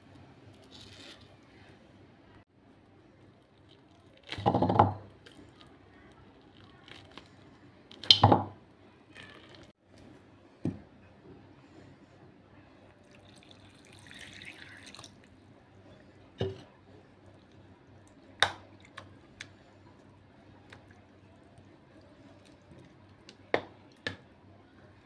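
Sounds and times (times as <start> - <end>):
water poured splash: 13.2 - 15.2.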